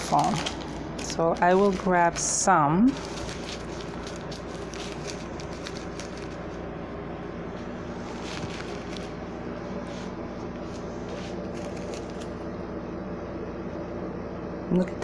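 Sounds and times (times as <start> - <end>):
plastic bags crinkling: 0.0 - 6.5, 8.0 - 9.2, 11.2 - 12.4
low hum and hiss: 0.0 - 15.0.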